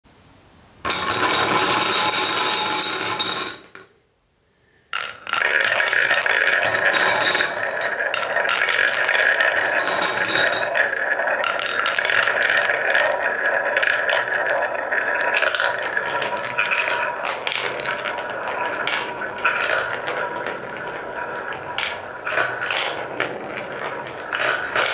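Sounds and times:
wooden balls rolling: 0.8s - 4.0s, 4.7s - 24.9s
balls clicking against wood: 5.0s - 24.9s.

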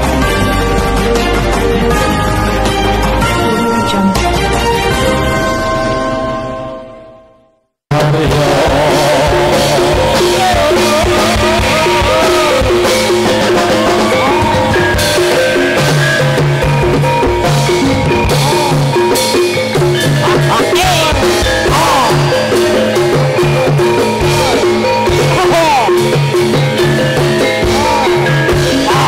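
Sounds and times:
intro jingle: 0.0s - 29.0s
drum-led dance music: 7.9s - 29.0s.

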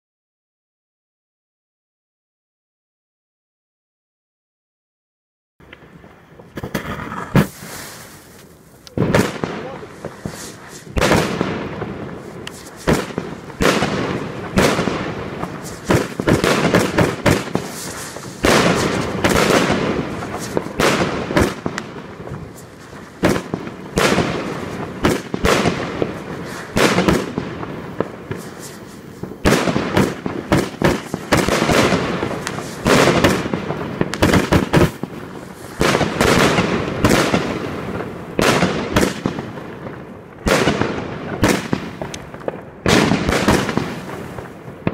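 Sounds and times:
firework bursts crackling: 5.6s - 44.9s
firework launch thumps: 5.7s - 39.4s.

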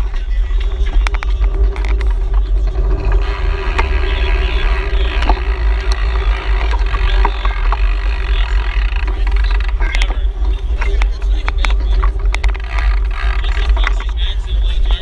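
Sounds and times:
faint steady hum: 0.0s - 15.0s
scattered clicks: 0.0s - 15.0s
wind buffeting microphone: 0.0s - 15.0s.

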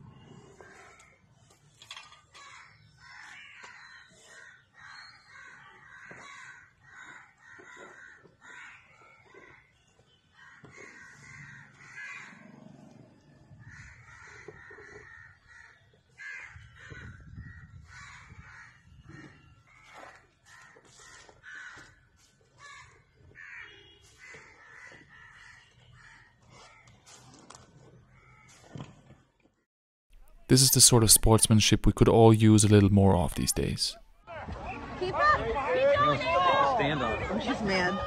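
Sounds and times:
crows cawing: 2.3s - 9.6s, 10.4s - 12.4s, 13.6s - 17.3s, 17.9s - 19.8s, 20.5s - 26.8s.

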